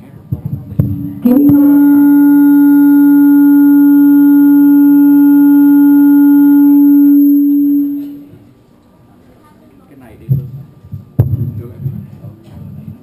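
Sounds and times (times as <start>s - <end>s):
microphone feedback howl: 1.0s - 8.4s.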